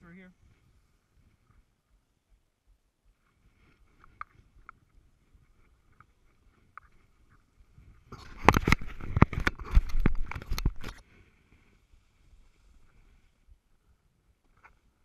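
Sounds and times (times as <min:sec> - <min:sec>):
gloved hands rubbing camera housing: 0:08.1 - 0:11.0.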